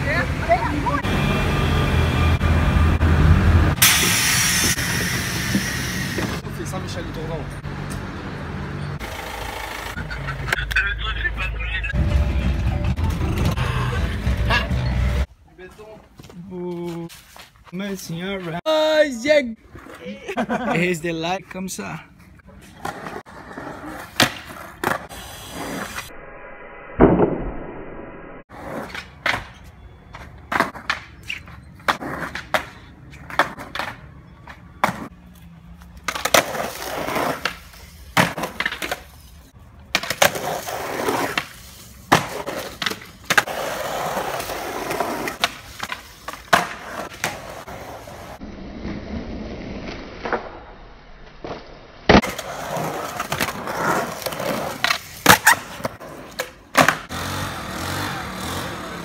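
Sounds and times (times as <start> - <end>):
skateboard wheels rolling on concrete: 0.0 - 26.1, 28.5 - 59.0
skateboards clacking: 9.0 - 11.0, 28.6 - 35.1, 35.8 - 39.2, 39.8 - 48.4, 52.1 - 59.0.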